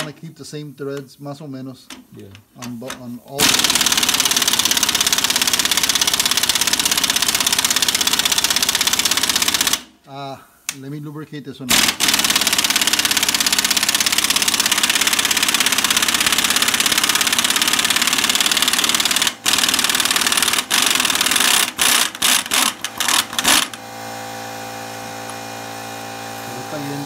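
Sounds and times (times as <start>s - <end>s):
air impact wrench hammering: 1.9s - 9.9s, 11.7s - 27.0s.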